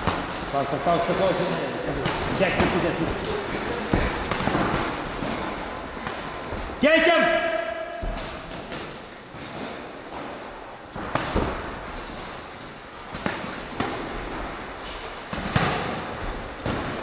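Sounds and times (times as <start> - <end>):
boxing gloves punching: 2.0 - 6.3.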